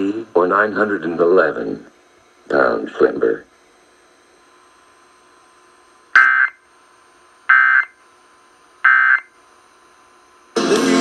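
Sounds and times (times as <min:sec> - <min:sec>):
data tone bursts over speakers: 0:06.1 - 0:06.7, 0:07.5 - 0:08.0, 0:08.8 - 0:09.4.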